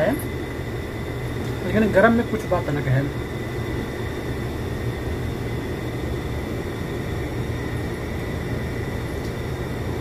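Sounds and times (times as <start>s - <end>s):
air conditioner humming: 0.0s - 10.0s.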